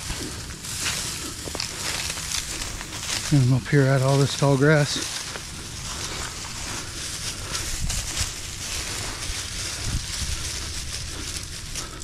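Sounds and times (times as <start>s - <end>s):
tall grass rustling: 0.0s - 12.0s
wind rumble on microphone: 4.9s - 12.0s.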